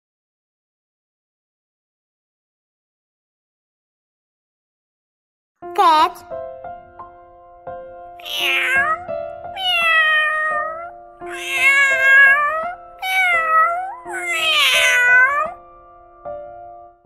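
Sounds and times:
quiet background music: 5.6 - 17.0
cat meowing: 8.2 - 15.6.

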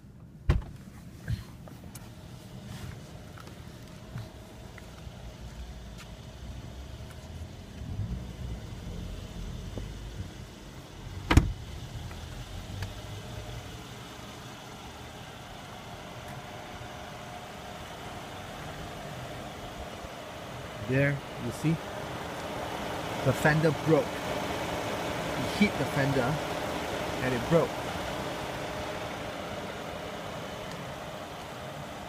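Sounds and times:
car engine idling: 0.0 - 32.0
car door shutting: 0.4 - 1.5, 11.2 - 11.6.

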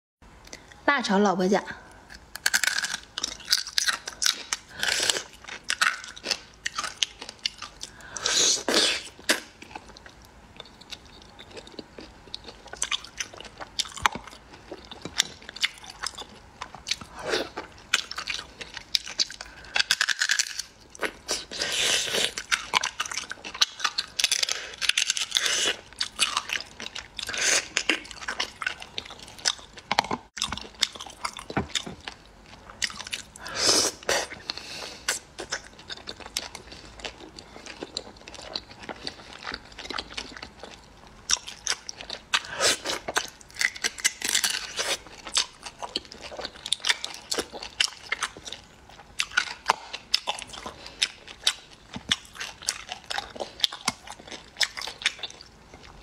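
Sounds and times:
wet chewing: 2.1 - 33.4.

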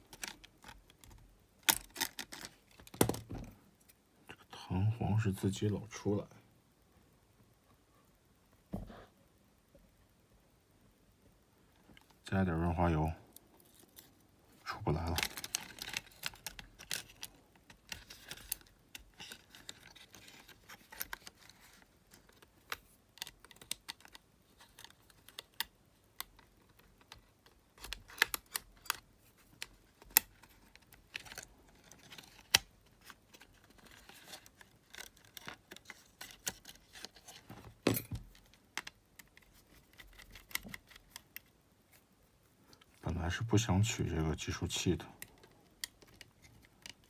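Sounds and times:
small clicks of plastic and metal parts: 0.0 - 3.2, 15.0 - 41.5, 44.8 - 47.0.

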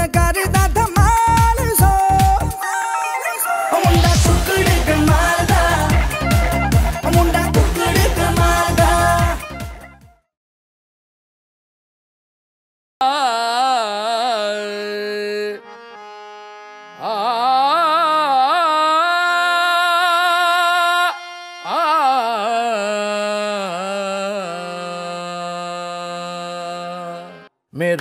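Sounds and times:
indian classical melody: 13.9 - 24.3, 26.1 - 27.5.

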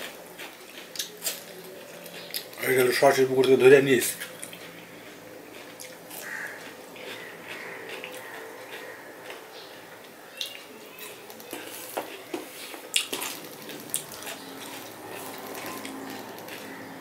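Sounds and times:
wet squishing of rice: 10.4 - 17.0.

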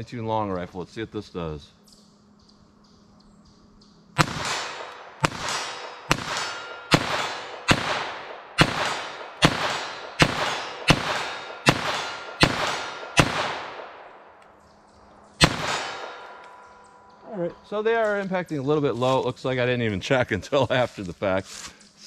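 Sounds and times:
pistol shots echoing: 4.2 - 14.5, 15.4 - 17.2.

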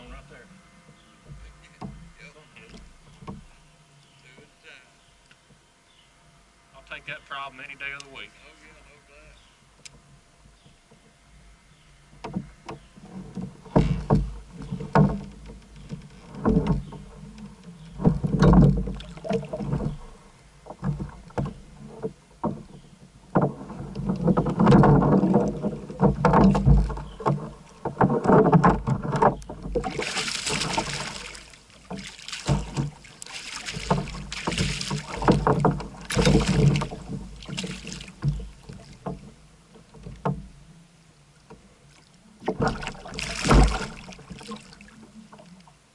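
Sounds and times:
water splashing against a kayak: 12.1 - 45.9.

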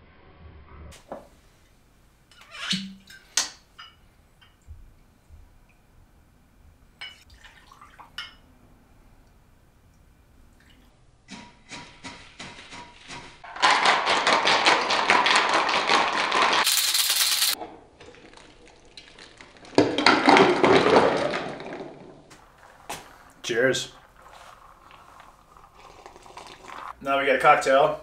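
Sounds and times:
ice rattling in cocktail shaker: 13.5 - 27.0.

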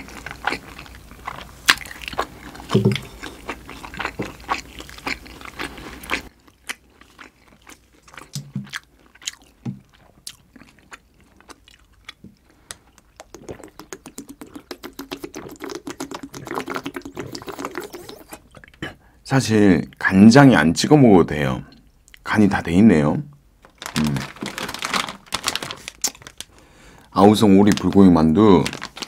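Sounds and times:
chewing with wet mouth clicks: 0.0 - 18.9
swallowing gulps: 2.4 - 4.4, 12.2 - 19.1.

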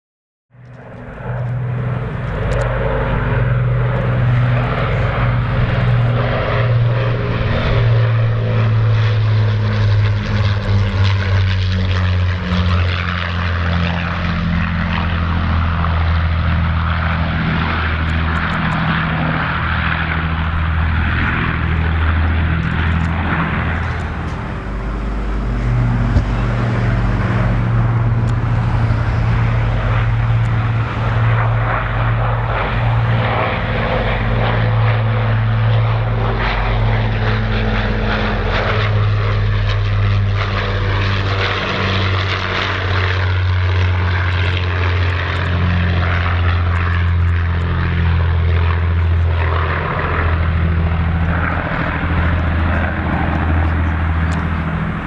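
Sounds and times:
propeller aircraft engines droning: 0.5 - 55.0.

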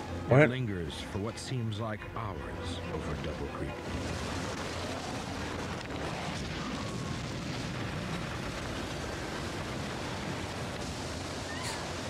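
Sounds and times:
tornado wind rushing: 3.7 - 12.0.

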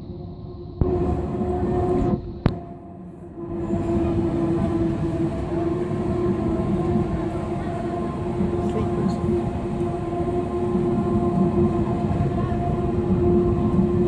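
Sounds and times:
electric train rolling past: 0.0 - 14.0.

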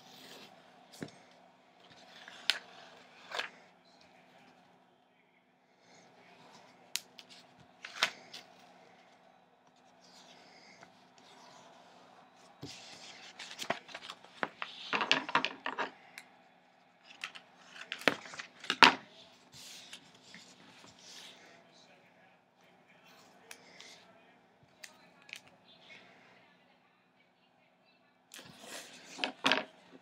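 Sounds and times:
paper rustling: 0.0 - 3.6, 6.3 - 9.0, 10.0 - 15.9, 17.0 - 21.6, 28.4 - 30.0.

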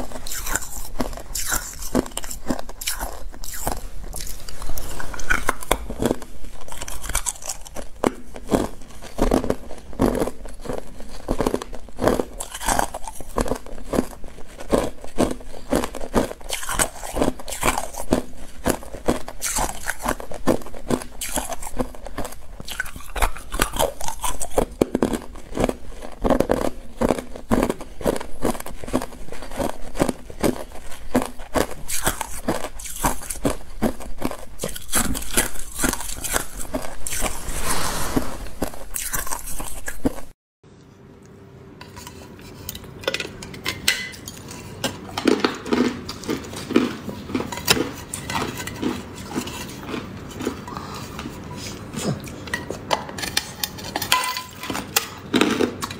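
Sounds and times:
ice being crunched by teeth: 0.0 - 37.5, 38.6 - 40.3.

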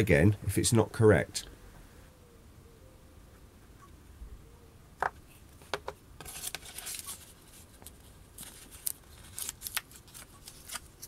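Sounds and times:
vinyl sheet crinkling: 6.2 - 11.0.

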